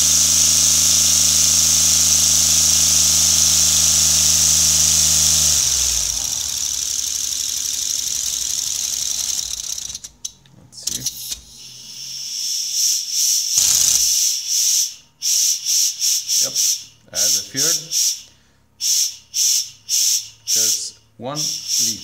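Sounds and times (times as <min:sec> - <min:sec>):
hiss of escaping air: 0:00.0 - 0:08.7, 0:11.7 - 0:20.8
air engine humming: 0:00.0 - 0:10.1.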